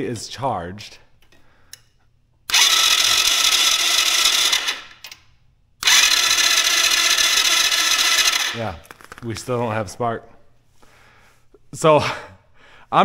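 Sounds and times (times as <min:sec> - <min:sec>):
electric starter cranking engine: 0:02.5 - 0:05.1, 0:05.8 - 0:09.0.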